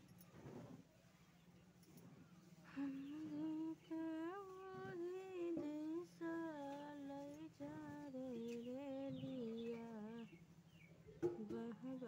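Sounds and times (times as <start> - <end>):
woman humming: 2.7 - 10.3.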